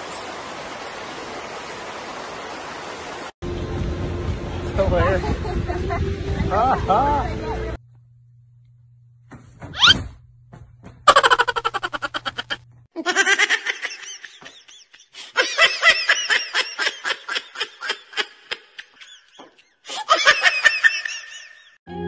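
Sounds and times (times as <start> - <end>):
person laughing hard: 11.1 - 21.8.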